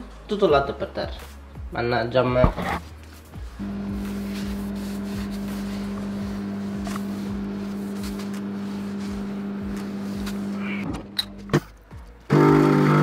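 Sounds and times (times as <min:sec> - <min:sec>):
kitchen appliance humming: 0:03.6 - 0:11.6, 0:12.3 - 0:13.0.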